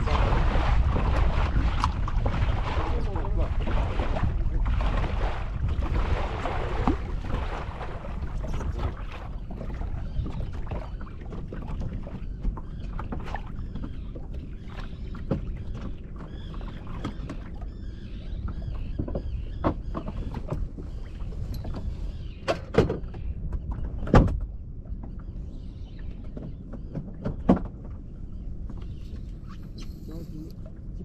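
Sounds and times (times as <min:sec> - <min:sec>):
water moving around boat: 0:00.0 - 0:31.0
wind on microphone: 0:00.0 - 0:31.0.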